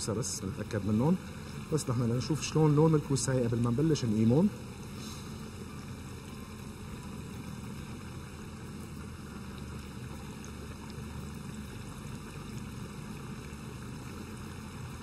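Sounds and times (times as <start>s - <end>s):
oil sizzling and bubbling: 0.0s - 15.0s.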